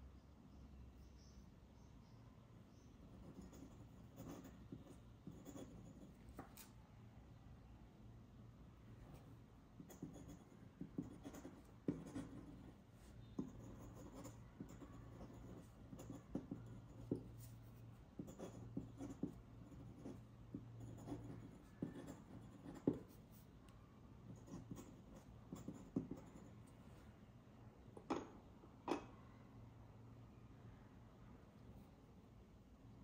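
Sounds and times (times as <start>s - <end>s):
dip pen scratching on paper: 3.1s - 6.7s, 9.8s - 23.5s, 24.3s - 26.6s.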